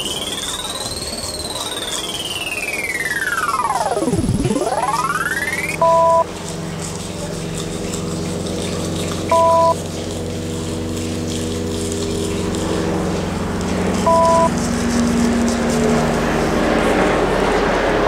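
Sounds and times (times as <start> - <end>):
two-tone electronic beep: 0.0 - 6.2, 9.3 - 9.8, 14.1 - 14.5
low electronic drone: 0.0 - 6.4, 9.3 - 9.8, 14.1 - 14.5.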